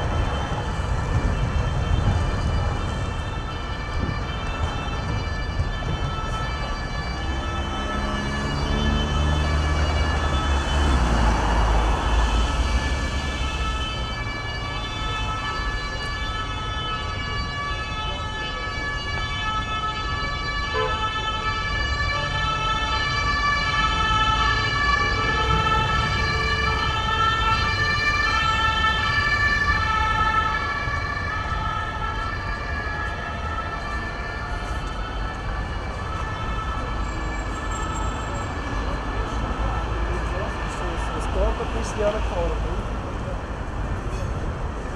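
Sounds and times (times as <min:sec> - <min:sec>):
emergency vehicle siren: 0:00.0 - 0:44.9
low street rumble: 0:00.0 - 0:44.9.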